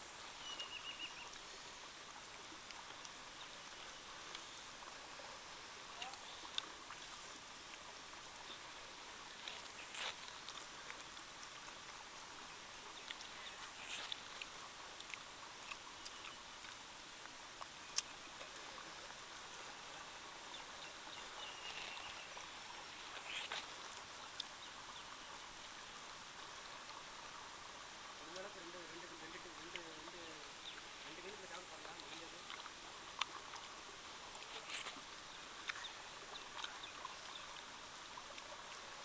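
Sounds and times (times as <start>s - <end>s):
steady high hiss: 0.0s - 39.0s
people eating by hand: 9.3s - 24.6s, 28.4s - 39.0s.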